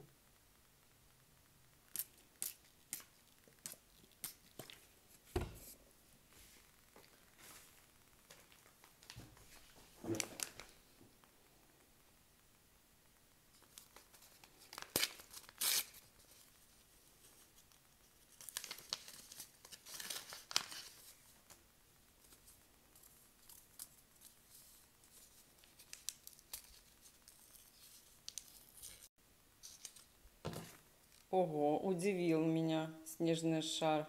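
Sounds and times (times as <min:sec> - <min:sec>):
seed packet crinkling: 0:08.3 - 0:10.8, 0:13.6 - 0:16.6, 0:17.2 - 0:21.6
paper tearing: 0:14.7 - 0:16.1.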